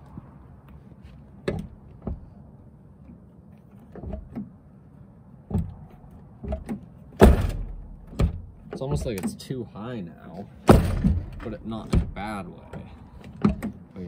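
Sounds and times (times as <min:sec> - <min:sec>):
truck door pushed shut: 0:06.4 - 0:09.3, 0:10.7 - 0:12.2.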